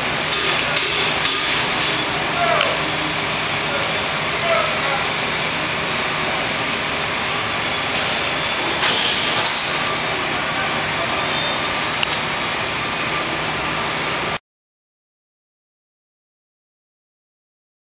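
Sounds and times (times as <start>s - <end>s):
bright hiss: 0.0s - 14.4s
fabrication shop rushing noise: 0.0s - 14.4s.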